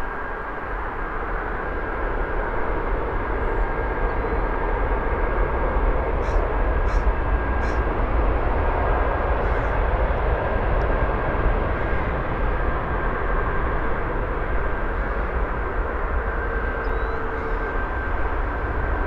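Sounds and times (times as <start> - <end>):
jet engines roaring with whine: 0.0 - 19.0.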